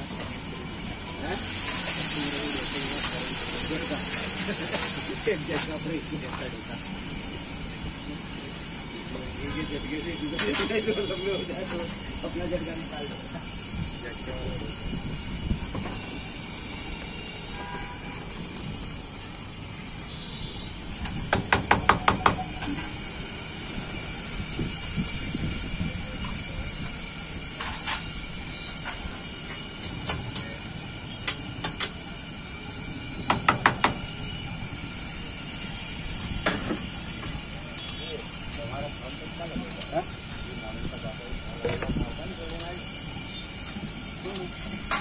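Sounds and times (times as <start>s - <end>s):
hot griddle hissing: 0.0s - 45.0s
sharp metallic taps: 21.0s - 22.4s.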